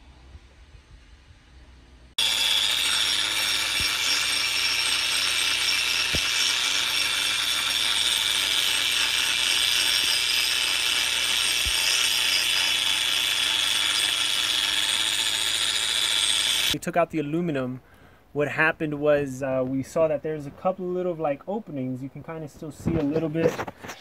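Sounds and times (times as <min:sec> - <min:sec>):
power grinder grinding concrete: 0:02.2 - 0:16.8.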